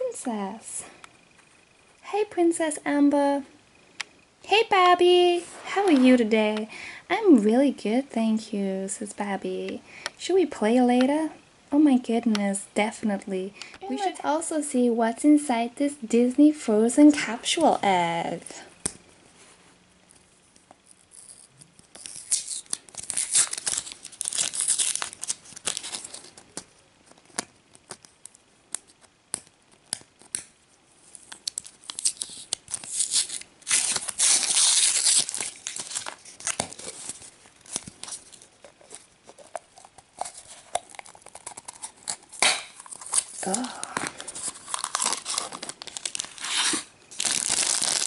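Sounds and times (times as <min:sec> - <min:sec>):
wrapper crinkling and tearing: 0:21.1 - 0:28.1, 0:29.9 - 0:48.0.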